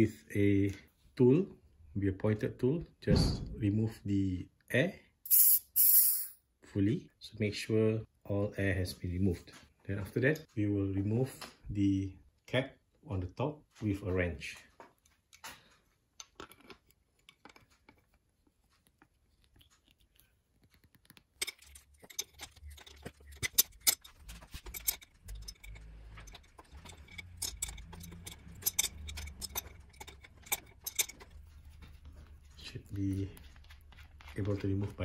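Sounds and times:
wrench clinking on metal: 21.4 - 31.5.

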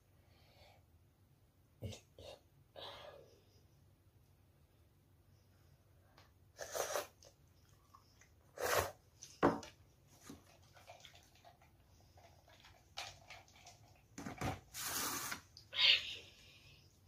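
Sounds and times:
child slurping noodles: 6.6 - 7.3, 8.5 - 9.0, 14.8 - 15.4
faint chewing: 7.2 - 8.6.

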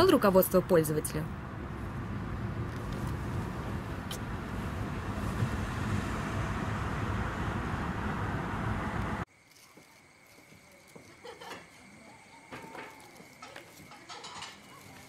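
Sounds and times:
car road and engine noise: 0.0 - 9.3.

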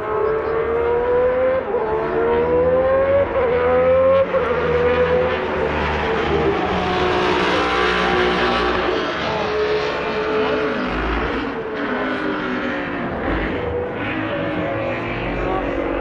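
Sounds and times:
race car engines revving: 0.0 - 16.0.

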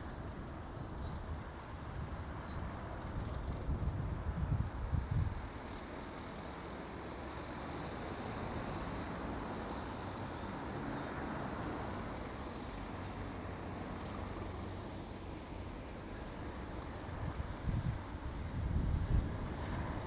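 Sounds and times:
diesel locomotive engine rumbling: 0.0 - 20.0.

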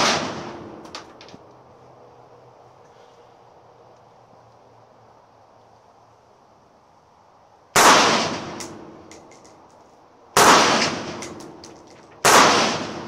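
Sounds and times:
pistol shots ringing: 7.8 - 8.9, 10.4 - 11.6, 12.2 - 13.0.

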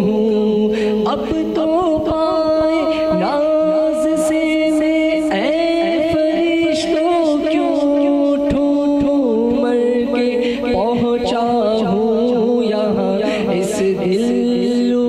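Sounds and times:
held vocal drone: 0.0 - 15.0
man singing ornamented melody: 0.0 - 15.0.

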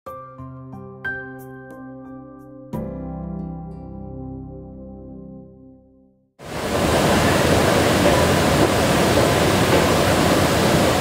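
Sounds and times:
soft title music: 0.1 - 6.2
airport terminal rushing noise: 6.6 - 11.0.

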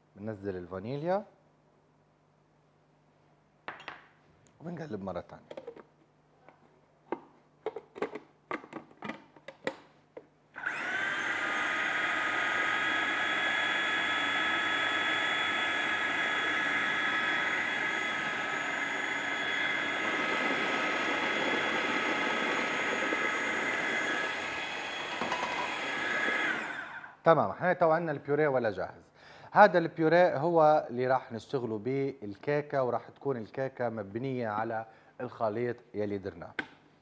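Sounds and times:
food processor motor whining: 10.6 - 27.2.

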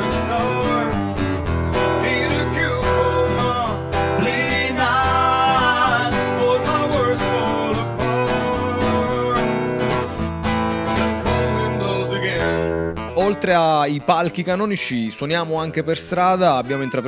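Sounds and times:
man singing: 0.0 - 10.1, 11.1 - 13.6, 16.2 - 17.0
strummed acoustic guitar: 0.0 - 14.1.

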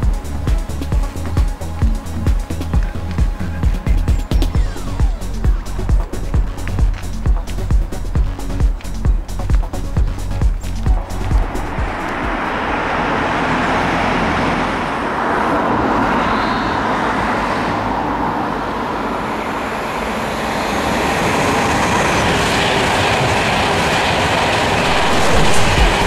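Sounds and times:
high-speed train passing: 0.0 - 26.0.

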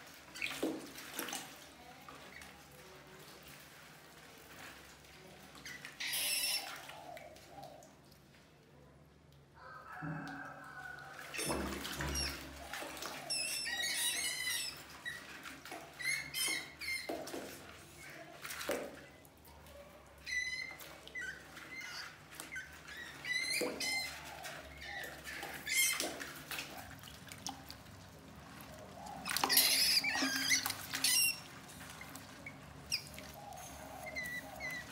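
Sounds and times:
water splashing in bucket: 0.0 - 8.7, 9.9 - 34.9
rats squeaking: 5.6 - 7.2, 11.3 - 15.4, 16.0 - 17.1, 20.2 - 26.2, 29.0 - 34.9.

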